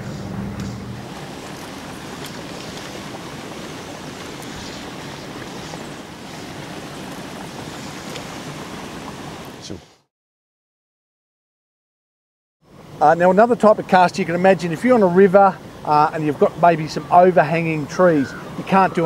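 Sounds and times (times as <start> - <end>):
wind rushing across microphone: 0.0 - 10.0.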